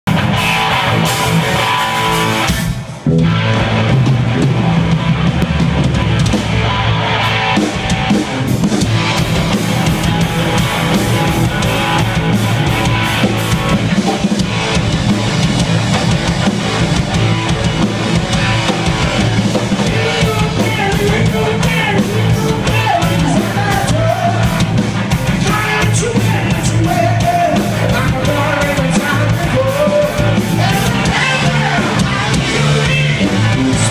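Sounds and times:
rock band playing: 0:00.0 - 0:33.9
man singing: 0:19.8 - 0:33.9.

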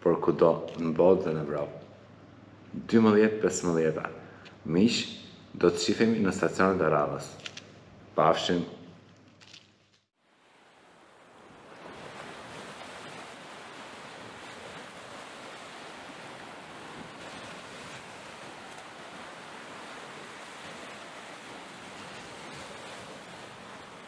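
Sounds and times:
ocean waves surf: 0:10.2 - 0:24.0.

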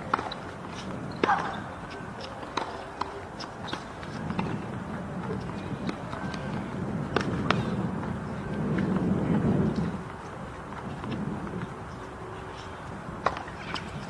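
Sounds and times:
tennis ball bouncing on court: 0:00.0 - 0:09.1, 0:13.2 - 0:14.0.

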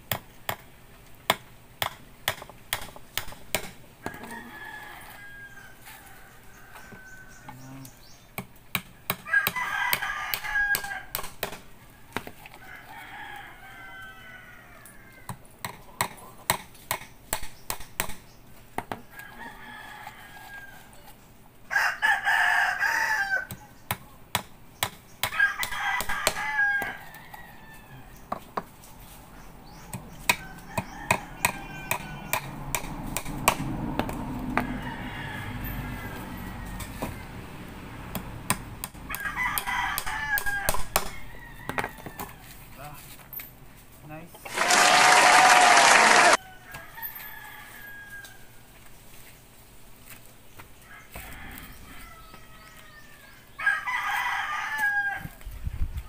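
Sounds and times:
roosters crowing: 0:04.0 - 0:08.2, 0:09.0 - 0:15.6, 0:19.0 - 0:23.8, 0:25.2 - 0:43.0, 0:44.4 - 0:48.8, 0:50.8 - 0:55.5.

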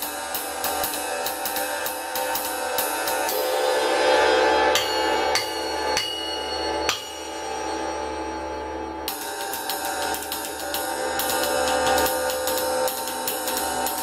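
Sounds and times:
ride cymbal struck with drumsticks: 0:00.0 - 0:07.5, 0:09.1 - 0:14.0.

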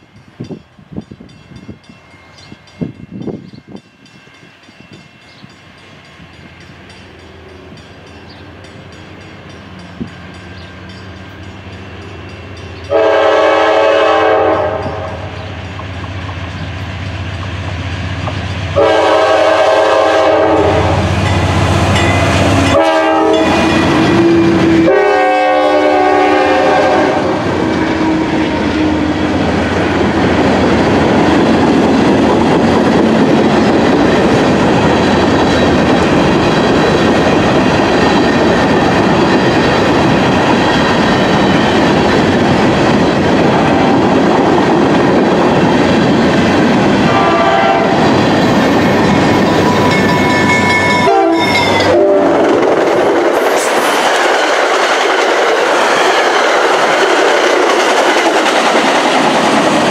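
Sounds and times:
freight train rumbling past: 0:00.0 - 0:59.9
train air horn blasts: 0:12.8 - 0:15.6, 0:18.8 - 0:21.2, 0:22.6 - 0:29.3, 0:47.1 - 0:48.1, 0:51.0 - 0:52.6.

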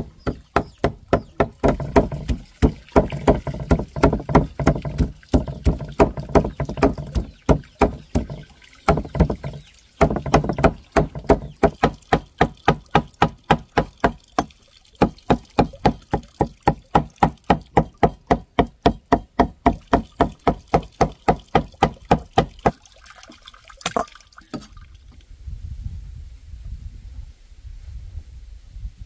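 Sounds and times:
knife chopping on a board: 0:00.2 - 0:14.2, 0:15.6 - 0:22.5.

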